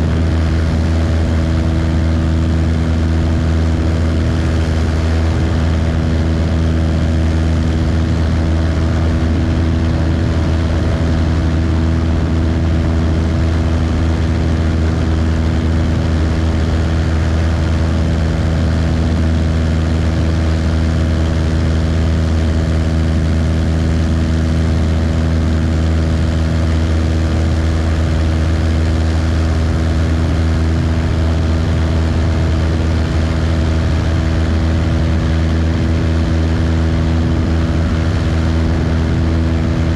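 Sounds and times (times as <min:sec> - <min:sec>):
light aircraft engine droning: 0:00.0 - 0:39.9.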